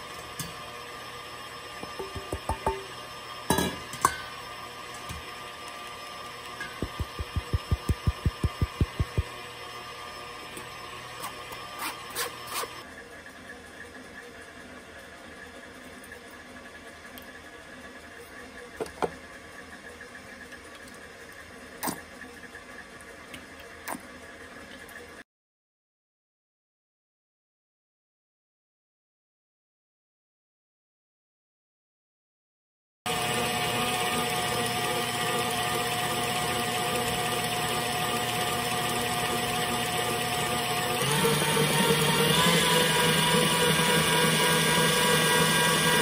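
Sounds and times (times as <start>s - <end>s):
stand mixer whisking: 4.6s - 12.8s, 33.1s - 46.0s
low hum: 6.7s - 9.4s.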